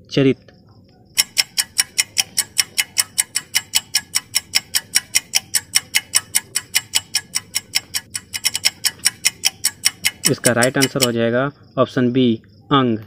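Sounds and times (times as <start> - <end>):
countdown timer ticking: 1.2 - 11.2.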